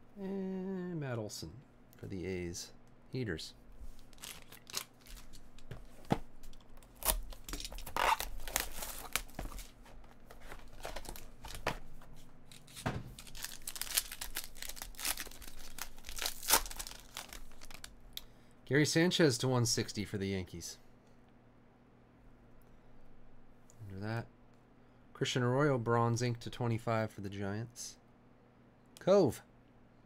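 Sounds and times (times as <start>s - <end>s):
foil card pack rustling: 3.9s - 5.9s, 6.8s - 17.9s
foil wrapper tearing: 4.0s - 5.4s, 6.9s - 9.4s, 12.5s - 17.9s.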